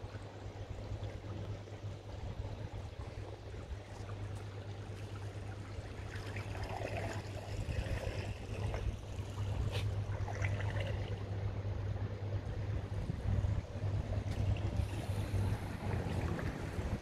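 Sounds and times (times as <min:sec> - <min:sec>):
noise like moving water: 0:00.0 - 0:17.0
low rumble: 0:07.3 - 0:17.0.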